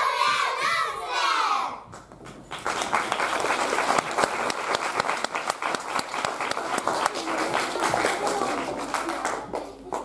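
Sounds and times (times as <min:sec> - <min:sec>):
children shouting together: 0:00.0 - 0:01.8
audience applause: 0:02.4 - 0:10.0.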